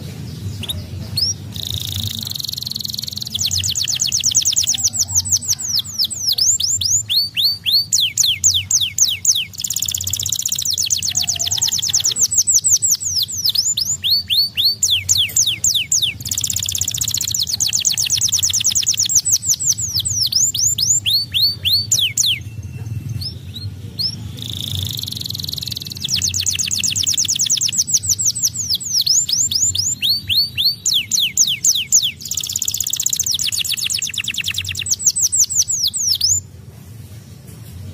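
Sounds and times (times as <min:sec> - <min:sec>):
canary singing trills: 0:00.0 - 0:36.5.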